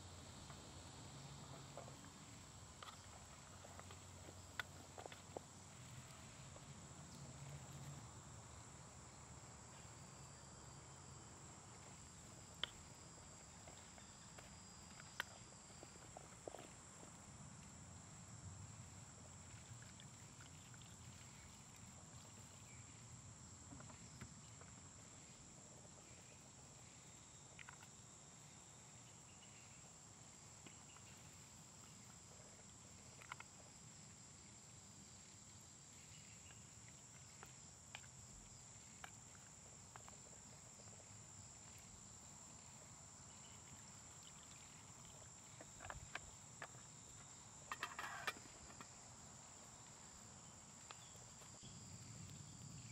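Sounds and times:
small clicks and ticks: 0:31.8 - 0:33.7.

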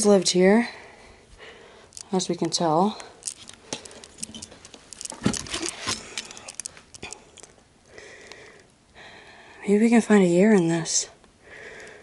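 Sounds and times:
paper and cardboard rustling: 0:04.5 - 0:06.6.

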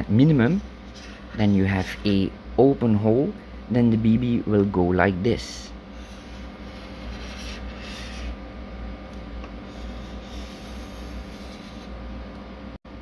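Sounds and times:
low room hum: 0:00.0 - 0:13.0
felt-tip marker scratching: 0:06.0 - 0:08.4, 0:09.7 - 0:11.9.

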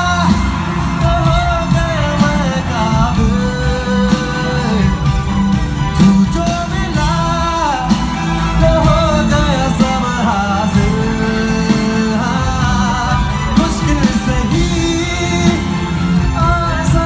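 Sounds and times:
live rock band playing: 0:00.0 - 0:17.0
man singing: 0:00.0 - 0:17.0.

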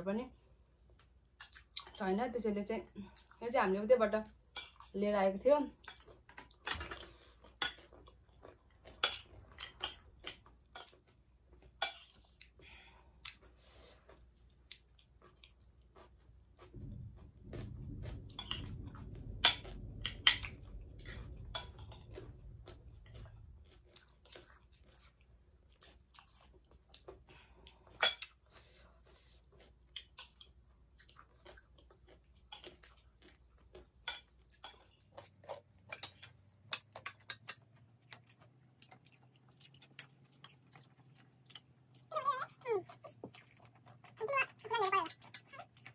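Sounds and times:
chewing and crunching: 0:00.4 - 0:02.1, 0:05.6 - 0:45.9
low rumble: 0:16.6 - 0:24.8.

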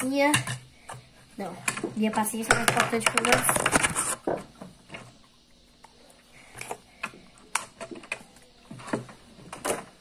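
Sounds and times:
plastic toys tapping on wooden table: 0:02.5 - 0:04.0.

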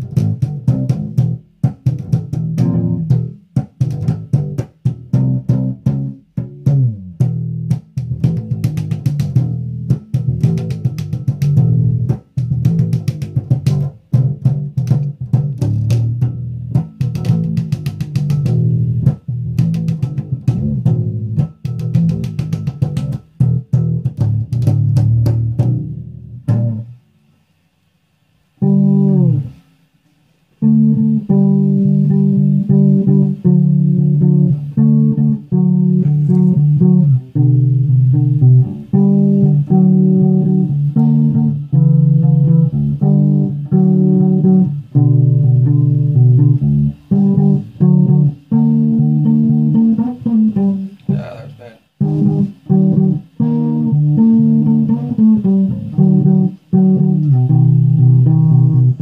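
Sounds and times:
fretless electric bass plucked: 0:00.0 - 0:27.1, 0:28.5 - 0:29.7, 0:30.5 - 0:59.0.

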